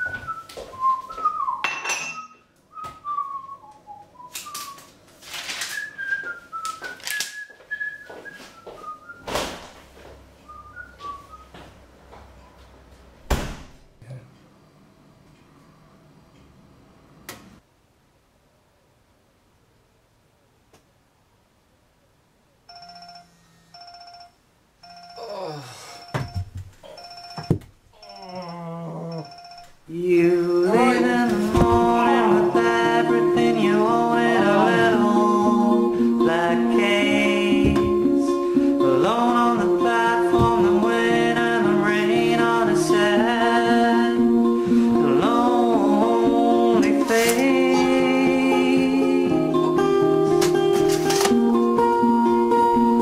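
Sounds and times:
man whistling a tune: 0.0s - 4.9s, 5.7s - 9.3s, 10.4s - 11.6s
alarm ringtone electronic tones: 22.7s - 29.8s
falling groan-like sound: 28.0s - 29.3s.

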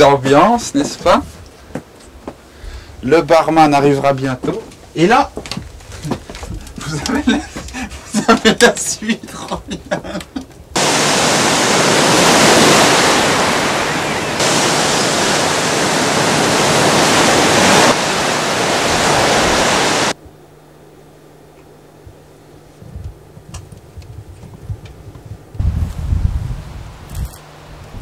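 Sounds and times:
rough sea surf and wind: 10.8s - 20.2s.

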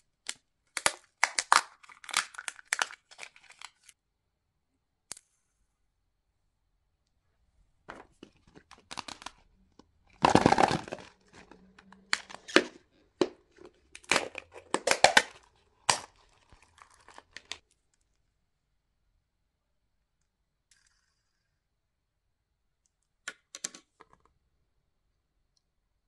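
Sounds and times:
wrapper tearing and crinkling: 0.7s - 4.0s, 8.4s - 9.4s, 10.2s - 12.8s, 13.5s - 17.6s.

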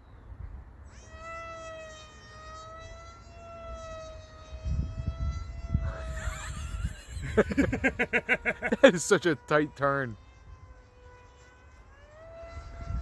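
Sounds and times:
electric motor and propeller whining: 0.4s - 13.0s
wind rumbling on microphone: 2.5s - 8.9s, 11.8s - 13.0s.

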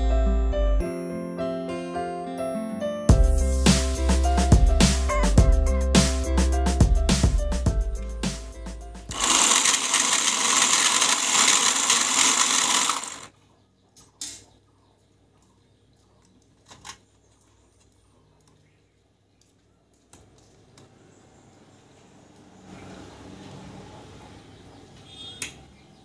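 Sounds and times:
music: 0.0s - 9.1s
small motor whirring: 9.1s - 13.3s.

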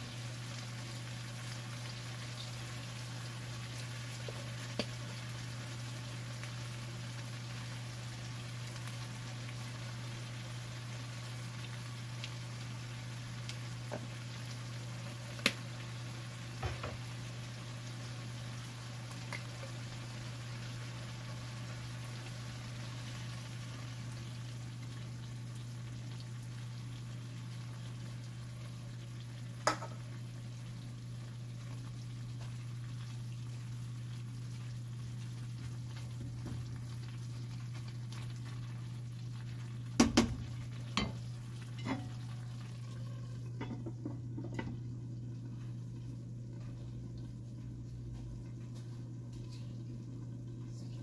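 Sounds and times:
food sizzling in a wok: 0.0s - 48.2s
utensil knocking on pan: 40.0s - 40.4s.

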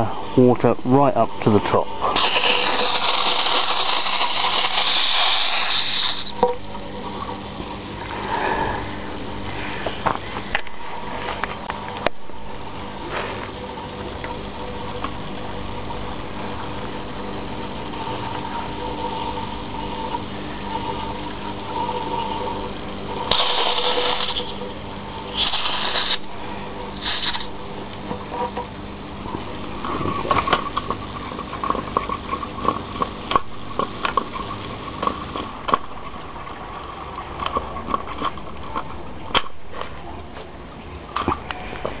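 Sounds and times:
compressor pump humming: 0.0s - 40.4s
short hiss bursts: 2.2s - 6.4s, 25.3s - 26.3s, 27.0s - 27.5s.

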